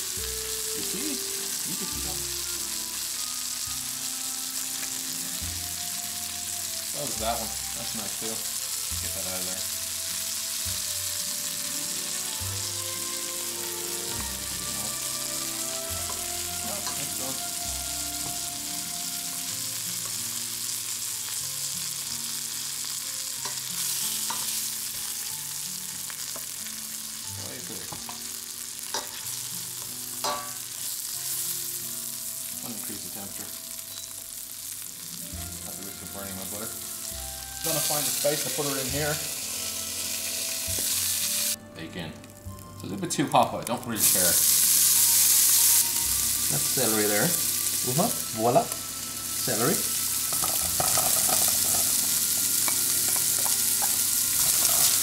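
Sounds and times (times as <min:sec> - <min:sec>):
chicken sizzling in a frying pan: 0:00.0 - 0:41.6, 0:42.2 - 0:55.0
metal tongs clicking on pan: 0:24.3 - 0:24.6, 0:30.2 - 0:30.6, 0:50.3 - 0:52.0, 0:52.6 - 0:55.0.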